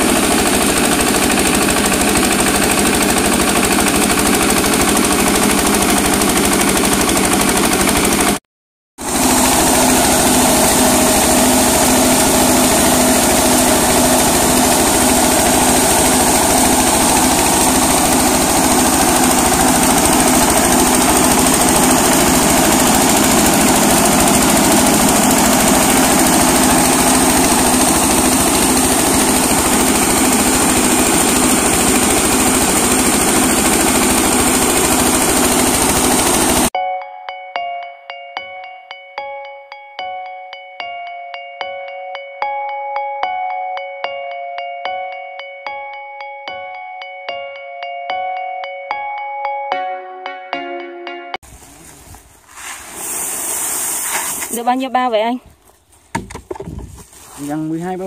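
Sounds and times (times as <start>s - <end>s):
diesel engine running under load: 0.0s - 8.4s, 9.0s - 36.7s.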